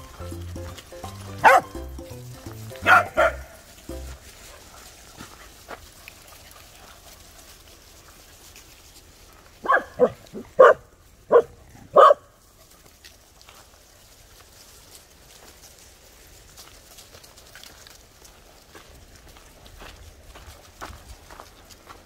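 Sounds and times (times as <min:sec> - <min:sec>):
dog barking: 0:01.4 - 0:01.8, 0:02.8 - 0:03.6, 0:09.6 - 0:12.3.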